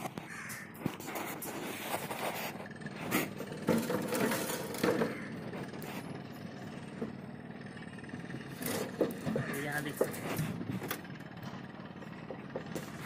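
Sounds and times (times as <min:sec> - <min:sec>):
hand tools knocking and clinking: 0:08.6 - 0:11.0.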